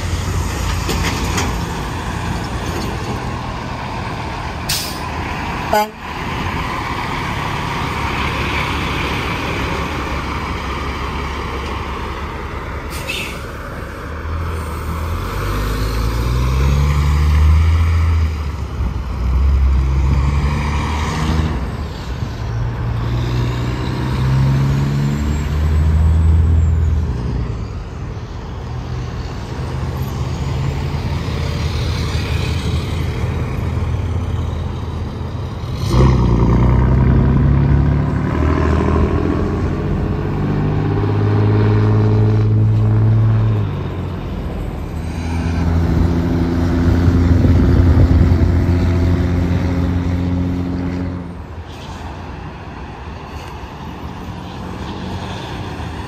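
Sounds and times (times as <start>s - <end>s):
diesel trucks passing: 0.0s - 56.0s.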